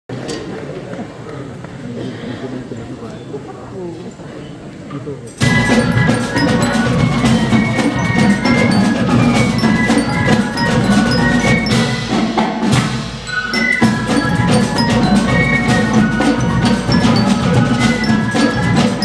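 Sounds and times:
flutes and bell lyre: 5.3 - 12.4, 13.3 - 19.0
drums and hand percussion: 5.3 - 19.0.

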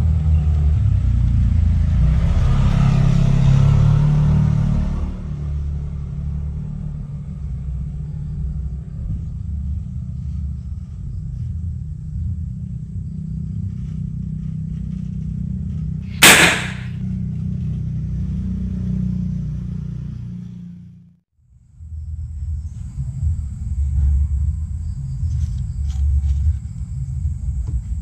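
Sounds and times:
cannon loud bang: 16.2 - 16.9.

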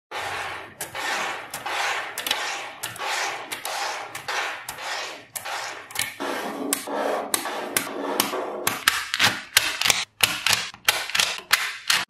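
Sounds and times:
ball strands scraping on tabletop: 0.1 - 8.9.

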